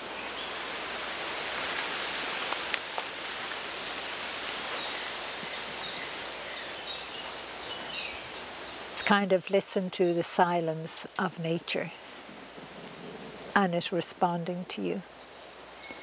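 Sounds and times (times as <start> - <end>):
wind rustling leafy trees: 0.0 - 16.0.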